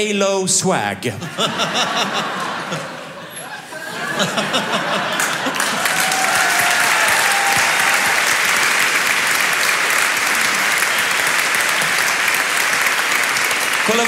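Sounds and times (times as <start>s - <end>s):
audience clapping: 4.1s - 14.0s.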